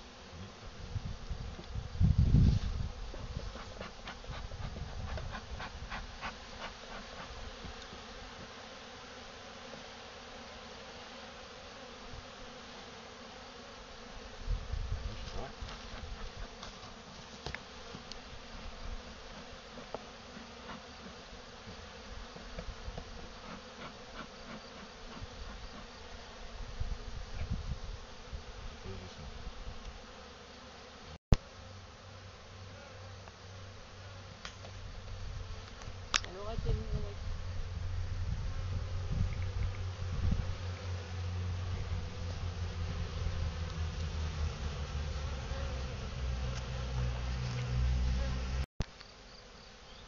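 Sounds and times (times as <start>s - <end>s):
bees buzzing: 0.0s - 50.0s
low bumps and rumbles: 37.7s - 48.6s.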